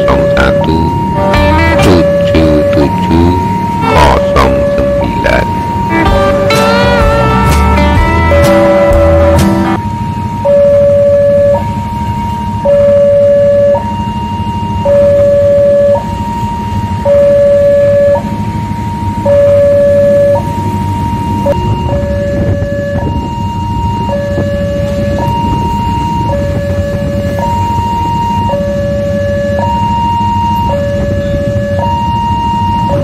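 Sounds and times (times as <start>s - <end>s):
level-crossing alarm two tones: 0.0s - 33.0s.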